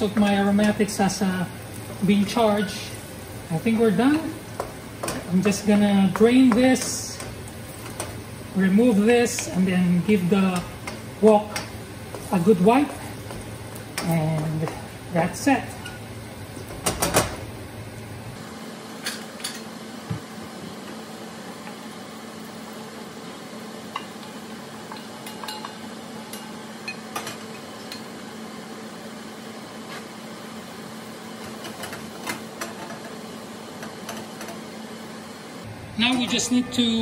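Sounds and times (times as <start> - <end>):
wok and spoon clinking: 23.9 - 28.1.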